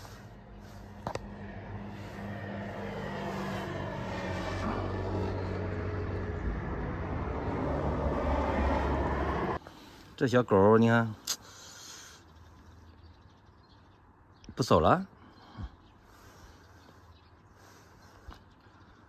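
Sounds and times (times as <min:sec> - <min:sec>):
engine humming: 0:00.0 - 0:09.9.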